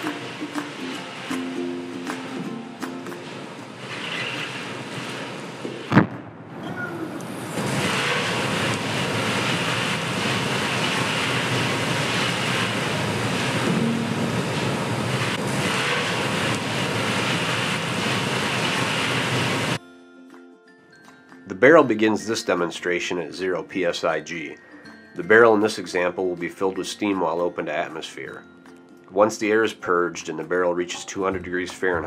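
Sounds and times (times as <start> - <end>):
steel drum imploding bang: 3.2 - 19.8
hiss of water spray: 3.8 - 5.6, 7.2 - 19.8.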